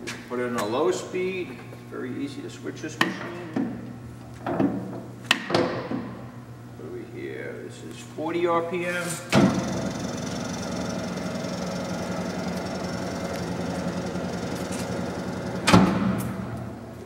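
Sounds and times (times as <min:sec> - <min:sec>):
lathe running: 0:09.4 - 0:17.0.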